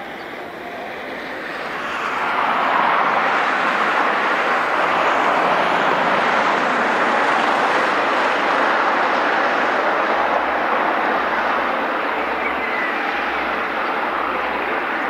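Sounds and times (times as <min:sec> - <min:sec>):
jet engines rushing: 0:00.0 - 0:15.0.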